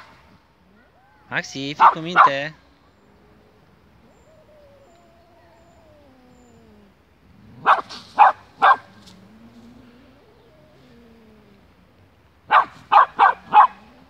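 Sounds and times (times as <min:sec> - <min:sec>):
dog barking: 0:01.8 - 0:02.5, 0:07.6 - 0:08.9, 0:12.5 - 0:13.9.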